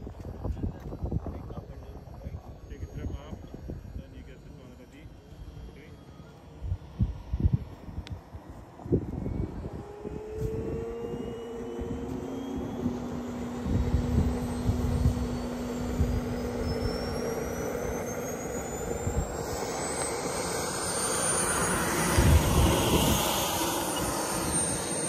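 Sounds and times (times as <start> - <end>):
jet turbine whine: 0.0 - 25.0
high whistle: 13.9 - 22.5.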